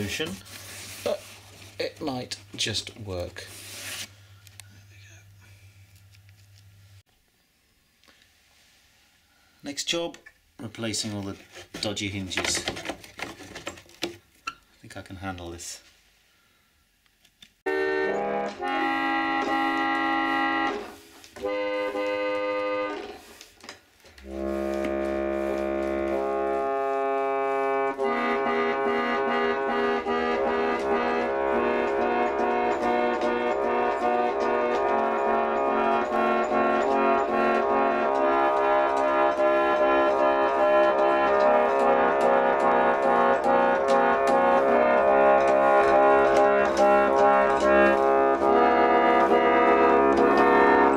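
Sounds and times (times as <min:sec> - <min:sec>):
reed organ playing chords: 0:17.7 - 0:23.4, 0:24.2 - 0:50.9.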